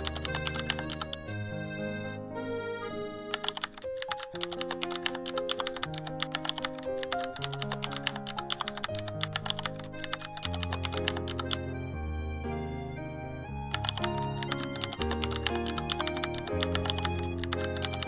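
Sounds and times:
keyboard typing clicks: 0.0s - 1.3s, 3.3s - 11.6s, 13.7s - 18.0s
background music with held notes: 0.0s - 18.0s.

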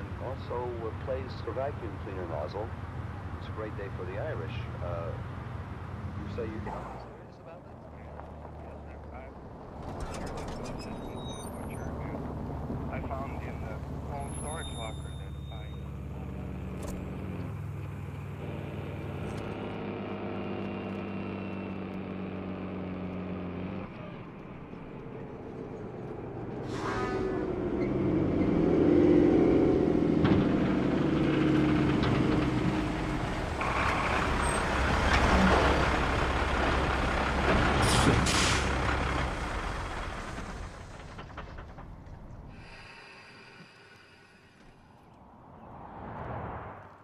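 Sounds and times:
diesel truck engine rumble: 0.0s - 45.8s
air brakes hissing: 26.6s - 27.3s, 37.8s - 38.8s, 42.5s - 44.9s.

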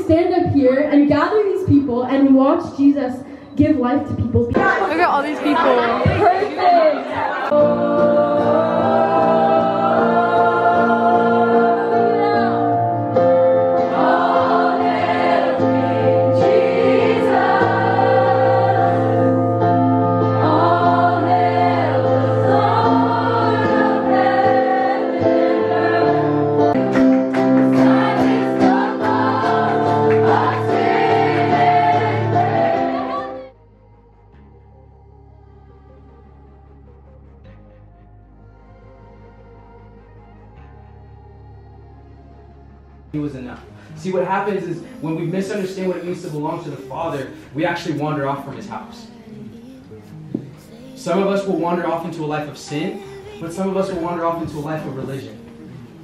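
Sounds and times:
backing music: 3.8s - 56.0s
people singing together: 4.5s - 33.6s, 44.2s - 56.0s
woman singing into a microphone: 49.0s - 51.3s, 52.7s - 56.0s.

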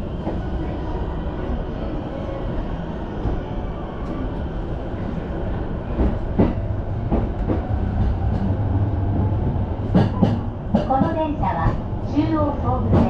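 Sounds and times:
train running rumble: 3.1s - 13.0s.

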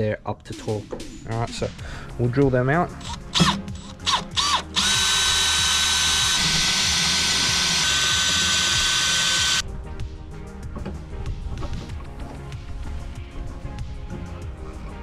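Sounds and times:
cordless drill whining: 3.0s - 9.6s.

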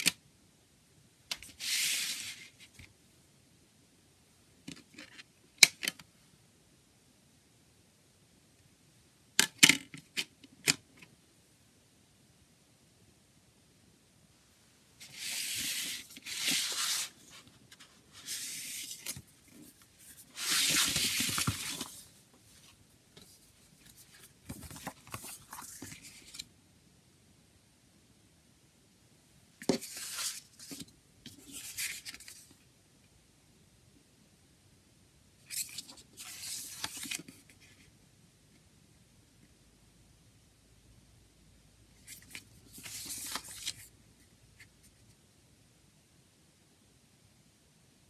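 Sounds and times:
paper rustling and crinkling: 15.0s - 26.4s, 29.7s - 32.5s, 35.5s - 37.7s, 42.1s - 43.9s.

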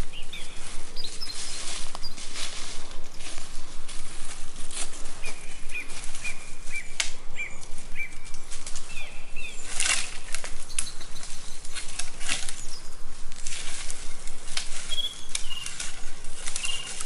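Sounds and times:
bird chirping: 0.0s - 2.3s, 5.2s - 13.0s, 14.8s - 17.0s
dry wood cracking: 9.6s - 12.7s, 13.3s - 17.0s.

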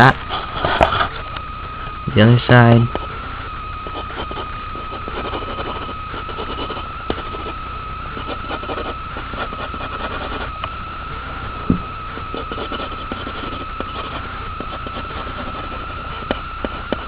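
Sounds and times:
high-pitched whine: 0.0s - 17.0s
low hum: 0.0s - 17.0s
pencil scratching on paper: 3.9s - 10.5s, 12.2s - 17.0s.

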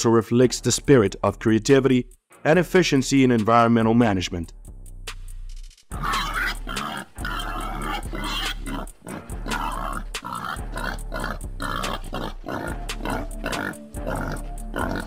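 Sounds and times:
background music: 0.0s - 15.0s
wild boar grunting and squealing: 5.9s - 15.0s.

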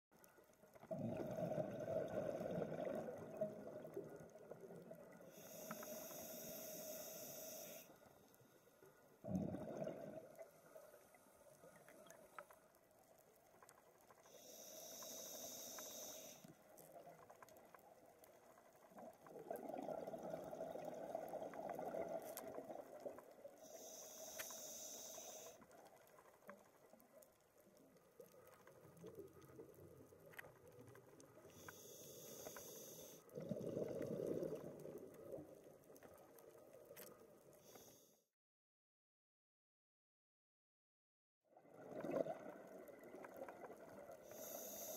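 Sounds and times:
underwater exhale bubbling: 0.8s - 7.6s, 9.2s - 10.6s, 19.3s - 25.5s, 31.5s - 35.6s, 41.6s - 44.9s
regulator inhale hiss: 5.3s - 7.9s, 14.3s - 16.5s, 23.6s - 25.6s, 31.5s - 33.2s, 37.6s - 38.2s, 44.2s - 44.9s.

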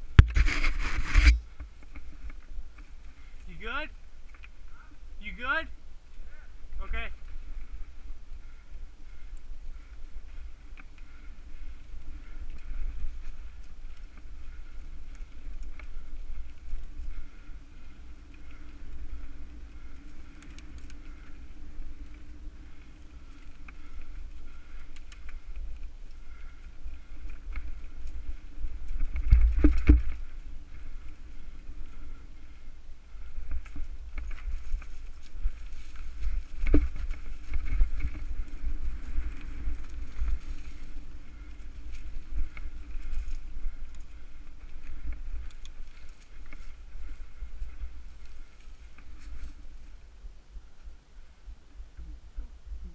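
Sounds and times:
bike rattling: 0.0s - 50.1s
wind against camera: 0.0s - 52.9s.

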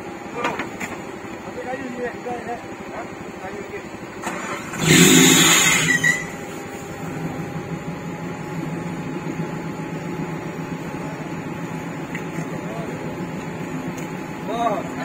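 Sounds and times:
off-road vehicle engine revving: 4.2s - 15.0s.

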